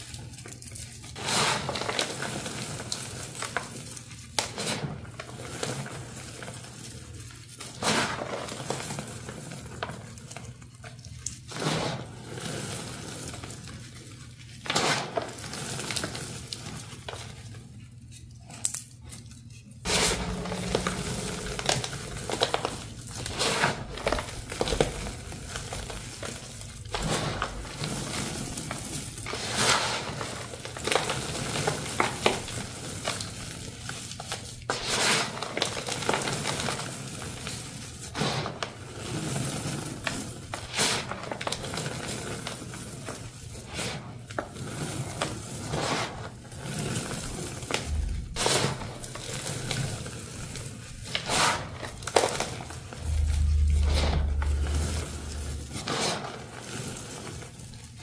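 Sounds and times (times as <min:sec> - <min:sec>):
hands crumbling powdery blocks: 0:00.0 - 0:58.0.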